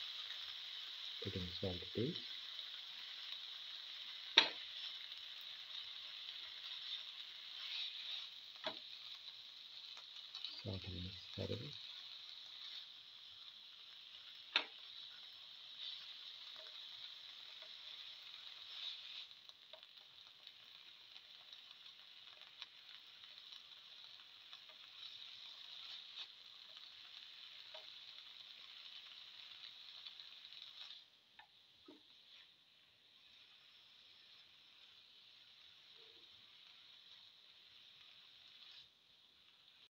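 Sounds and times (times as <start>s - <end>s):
vegetables sizzling in a pan: 0.0s - 39.9s
spatula scraping and tapping pan: 4.2s - 9.2s, 11.8s - 13.0s, 14.1s - 20.6s, 24.5s - 28.2s.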